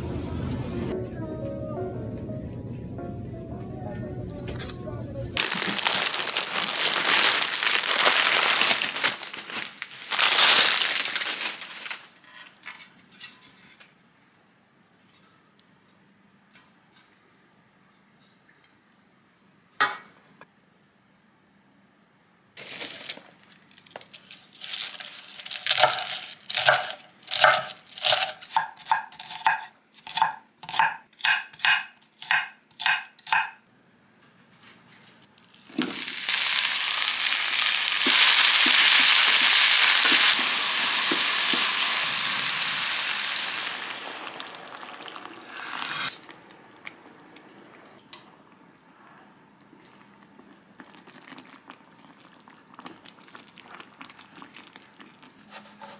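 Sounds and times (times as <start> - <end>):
food sizzling in a pan: 35.7 - 46.2.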